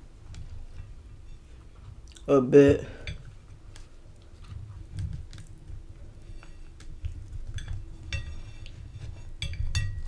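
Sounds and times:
tortilla rustling: 0.0s - 10.0s
clinks against a plate: 2.9s - 3.3s, 7.5s - 10.0s.

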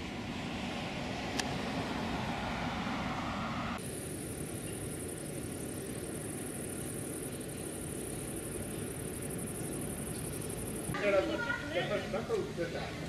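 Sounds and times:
insects trilling: 3.8s - 12.2s.

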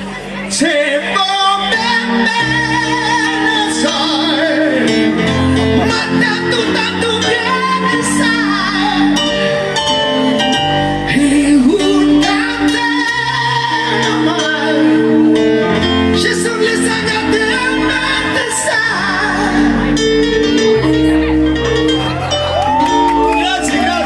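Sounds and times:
instrumental accompaniment: 0.0s - 24.0s
man singing a ballad: 0.4s - 9.5s, 11.0s - 20.3s.

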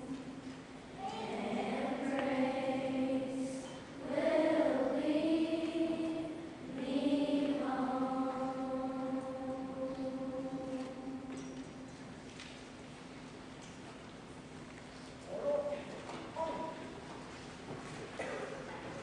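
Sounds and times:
chorus singing sustained notes: 1.1s - 11.9s.

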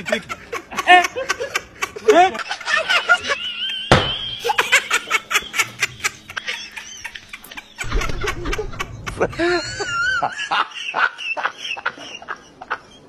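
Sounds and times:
person laughing: 0.0s - 13.0s
sharp knock: 3.9s - 4.4s.

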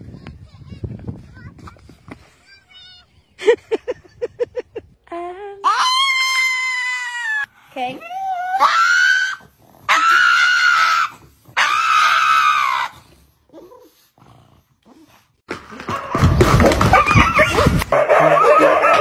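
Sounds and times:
dog screaming high-pitched: 5.6s - 7.5s, 8.1s - 13.0s, 16.9s - 19.0s
dogs barking and howling: 5.6s - 7.5s, 8.1s - 13.1s, 16.8s - 19.0s.

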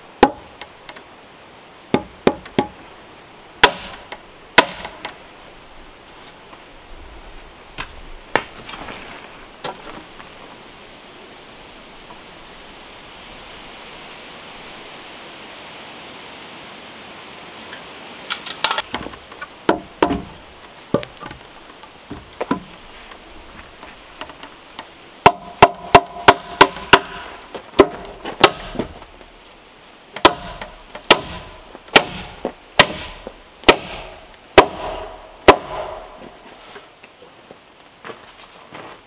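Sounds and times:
hammer blows on a log: 3.6s - 5.1s, 25.2s - 29.0s, 30.2s - 36.4s.

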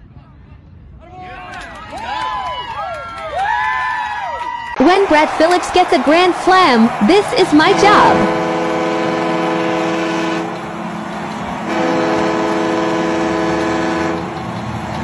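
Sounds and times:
horn blasts: 7.2s - 10.7s, 11.6s - 14.3s.

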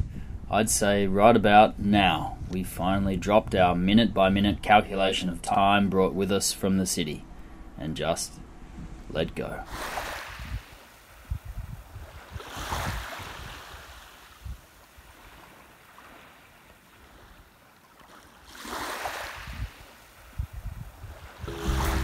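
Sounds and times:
wind buffeting microphone: 0.0s - 4.8s, 10.2s - 14.7s, 19.4s - 22.0s
small waves washing on beach: 9.7s - 22.0s.

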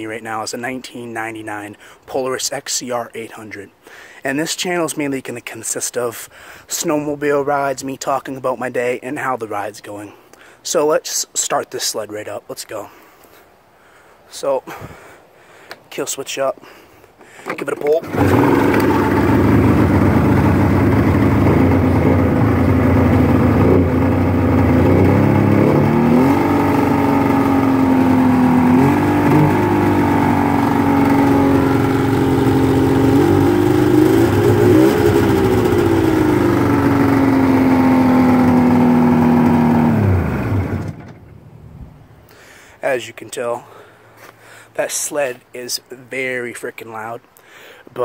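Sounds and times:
snowmobile engine idling: 18.0s - 41.2s.

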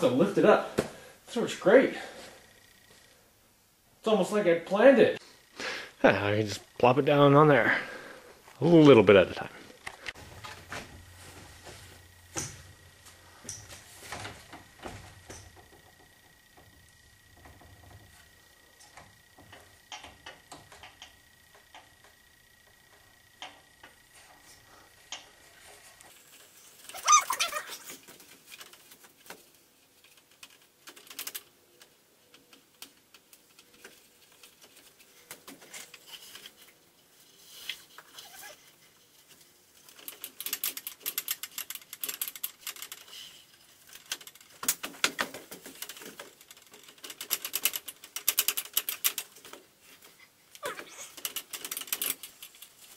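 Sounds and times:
rapid clicking: 39.8s - 49.7s, 51.1s - 52.9s.

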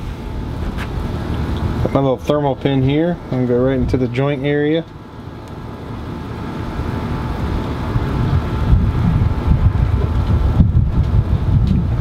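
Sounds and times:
wind buffeting microphone: 6.7s - 12.0s.

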